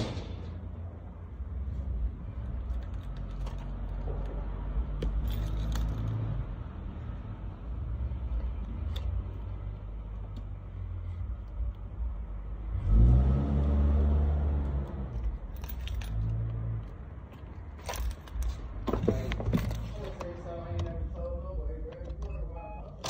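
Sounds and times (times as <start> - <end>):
metallic jingles and clicks: 5.0 - 6.3, 15.1 - 20.4.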